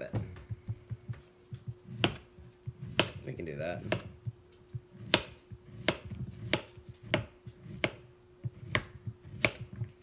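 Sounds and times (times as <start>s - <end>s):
knife slicing vegetable on cutting board: 1.8s - 9.8s.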